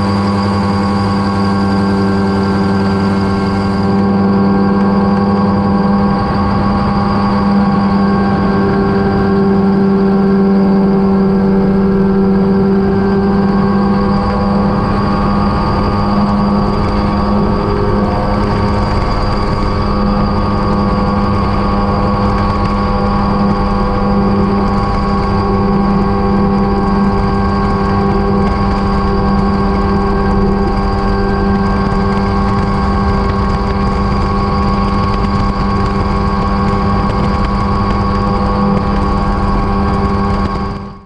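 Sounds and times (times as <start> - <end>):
helicopter engine and rotor drone: 0.0 - 41.0.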